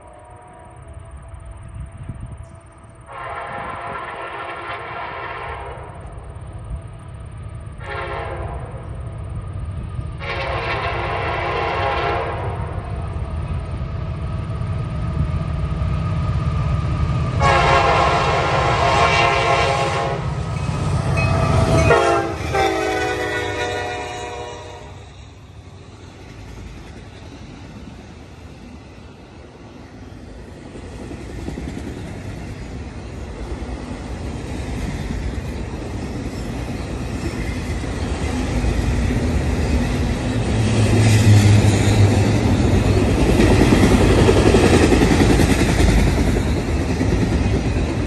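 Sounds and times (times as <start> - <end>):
locomotive engines rumbling: 0.0 - 48.0
rail cars rolling by: 0.0 - 48.0
locomotive air horn blasts: 3.1 - 6.0, 7.8 - 8.8, 10.2 - 12.8, 17.4 - 20.3, 21.2 - 25.1.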